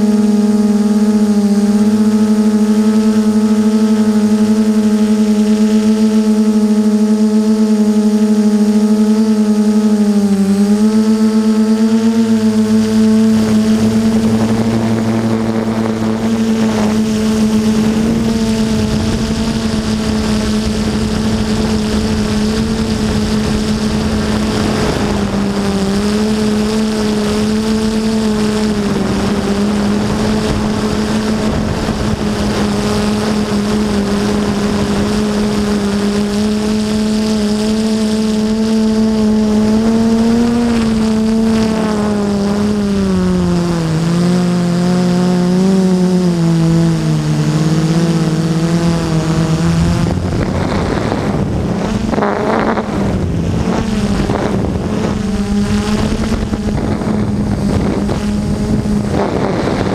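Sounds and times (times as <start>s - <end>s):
quadcopter propellers whining: 0.0s - 59.9s.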